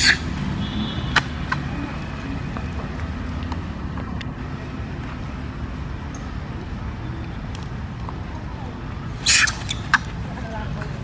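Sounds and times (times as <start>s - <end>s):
animals rustling in undergrowth: 9.1s - 11.0s.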